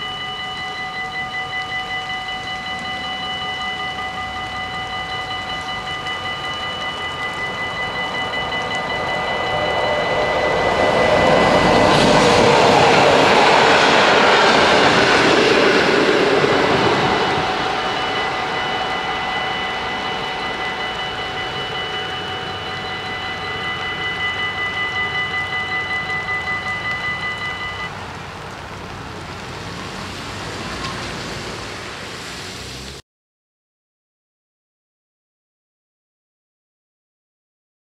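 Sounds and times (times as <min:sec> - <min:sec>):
level-crossing bell ringing: 0:00.0 - 0:27.9
rain hissing: 0:00.0 - 0:33.0
train wheels rumbling on rails: 0:00.0 - 0:33.0.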